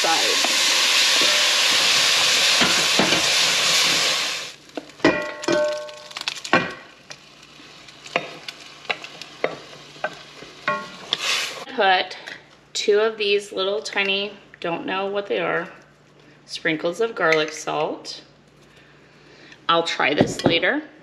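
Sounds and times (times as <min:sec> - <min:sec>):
pork sizzling in a pan: 0:00.0 - 0:11.7.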